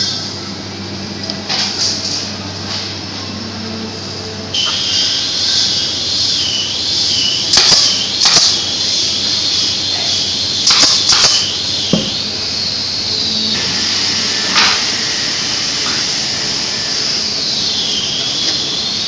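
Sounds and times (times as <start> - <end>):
nail gun shots: 7.5 - 8.6, 10.6 - 12.2
dull knock: 11.9 - 12.3.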